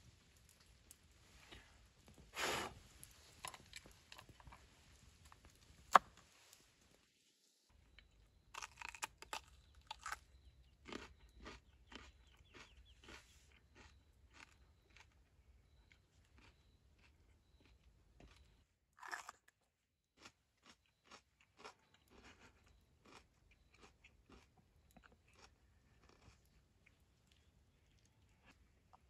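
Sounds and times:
crunching bites of raw pepper: 8.5s - 13.2s, 19.0s - 19.5s.

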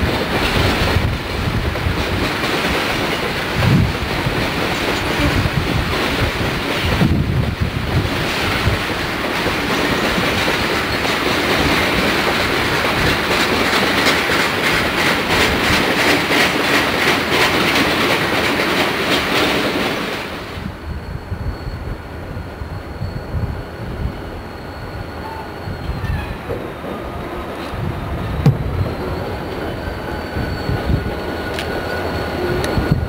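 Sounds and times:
wheels clicking over rail joints: 0.0s - 20.4s
train wheels rumbling on rails: 0.0s - 33.0s.

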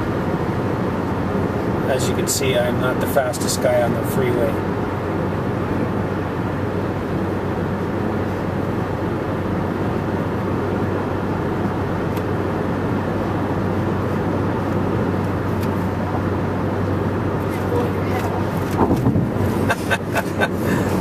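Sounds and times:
low engine hum: 0.0s - 21.0s
tyre and wind noise: 18.6s - 19.7s.

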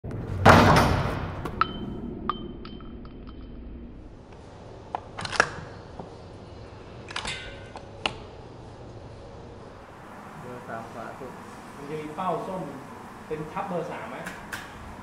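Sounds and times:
thin ringing tone: 1.6s - 4.1s.

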